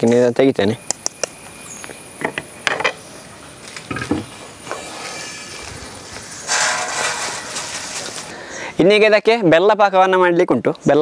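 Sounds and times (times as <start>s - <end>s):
dry flakes rustling: 3.6s - 8.7s.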